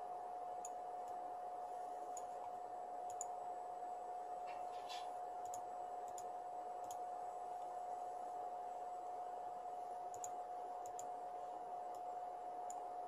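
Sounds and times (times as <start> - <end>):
computer mouse clicking: 2.1 - 3.4, 4.5 - 7.0, 10.0 - 11.2, 11.8 - 12.9.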